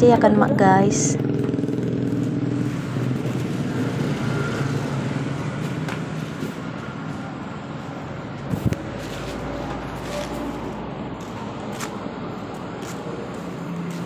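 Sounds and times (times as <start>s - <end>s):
motorcycle engine running: 0.0s - 7.4s.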